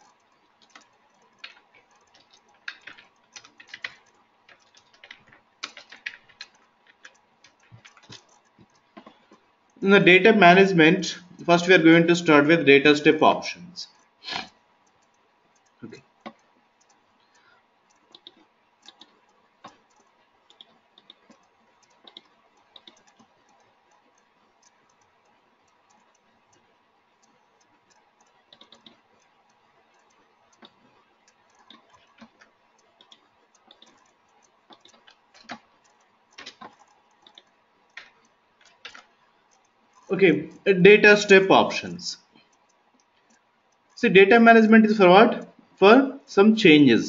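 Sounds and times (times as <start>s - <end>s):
mouse clicks: 0.0s - 9.8s, 13.9s - 40.6s
keyboard typing: 0.0s - 46.9s.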